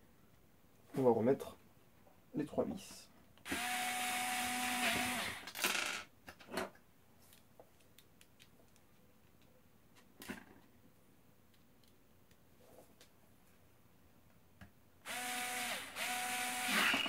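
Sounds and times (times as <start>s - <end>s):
electric screwdriver whirring: 3.5s - 5.6s, 15.1s - 17.0s.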